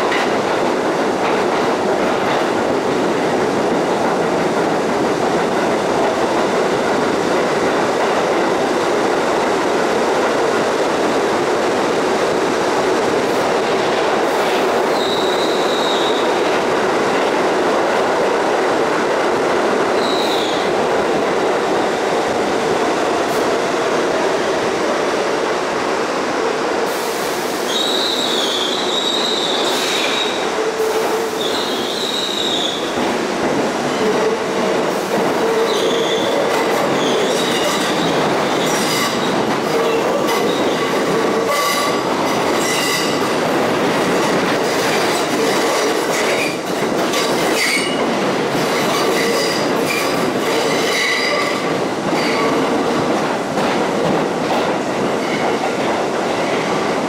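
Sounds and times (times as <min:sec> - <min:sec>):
subway train rumbling: 0:00.0 - 0:57.0
wheel squeal: 0:27.7 - 0:30.4.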